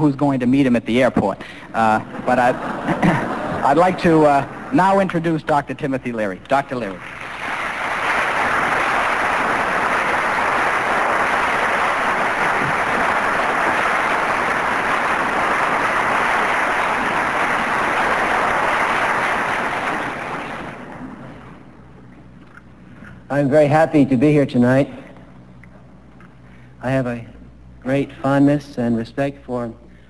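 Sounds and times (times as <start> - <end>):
audience applauding: 2.0 - 5.2, 6.7 - 21.6.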